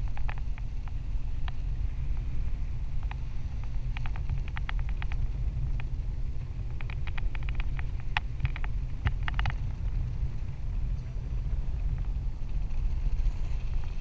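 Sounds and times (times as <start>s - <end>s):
wind buffeting microphone: 0.0s - 14.0s
small quick clicks and ticks: 3.0s - 5.9s, 6.6s - 9.8s.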